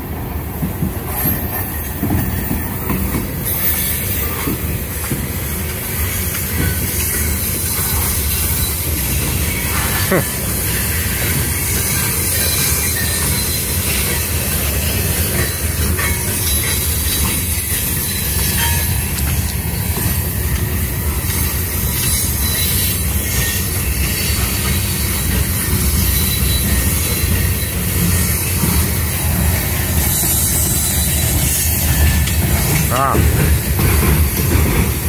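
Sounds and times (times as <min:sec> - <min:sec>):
wheels rumbling on track: 0:00.0 - 0:35.0
high wheel squeal: 0:01.1 - 0:04.8, 0:10.6 - 0:19.0, 0:21.7 - 0:32.8.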